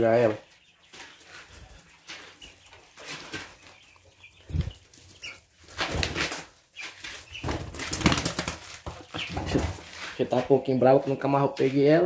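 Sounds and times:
quail wings flapping: 0:07.4 - 0:09.8.

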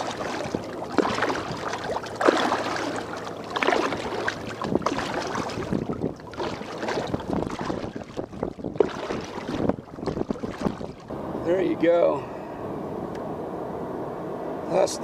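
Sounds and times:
water splashing against boat: 0:00.0 - 0:12.1
wind gusting on microphone: 0:04.6 - 0:11.8.

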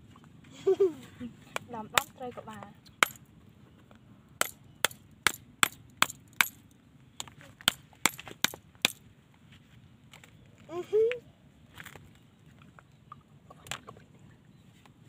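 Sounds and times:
wooden stick knocking on shell: 0:03.0 - 0:03.2, 0:04.4 - 0:06.6, 0:07.6 - 0:09.0.

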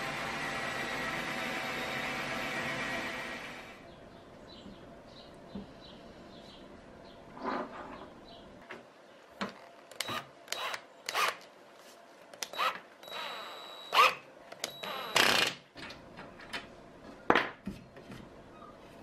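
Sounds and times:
drill motor whine: 0:00.0 - 0:03.8, 0:12.5 - 0:15.5.

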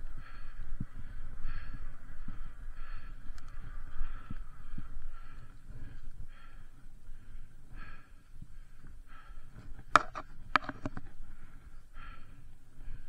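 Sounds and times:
bike tyres rumbling on trail: 0:00.0 - 0:13.0
heavy rhythmic breathing: 0:00.0 - 0:13.0
bike knocks and rattles: 0:09.8 - 0:11.1.

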